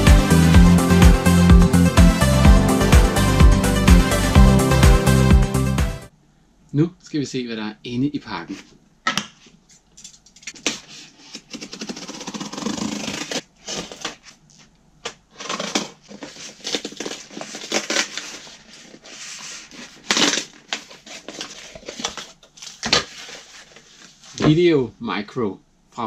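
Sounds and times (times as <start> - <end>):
scissors cutting cardboard: 10.5 - 14.4, 15.3 - 23.6
cardboard tearing: 10.5 - 24.5.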